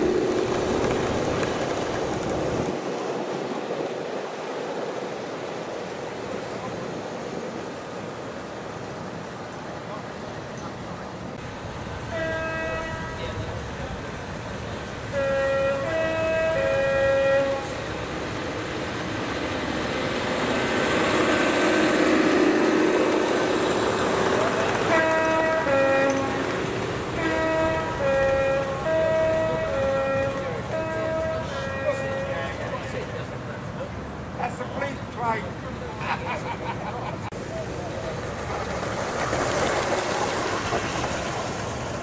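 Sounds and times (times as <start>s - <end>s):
diesel locomotive drone: 0.0s - 42.0s
model train running on track: 0.0s - 42.0s
two-tone locomotive horn: 12.1s - 13.6s, 15.1s - 17.9s, 24.6s - 32.9s.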